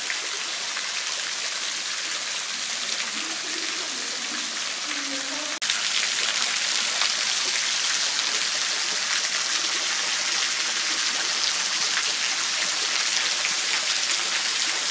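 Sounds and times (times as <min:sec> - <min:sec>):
water dripping into pool: 0:00.0 - 0:14.9.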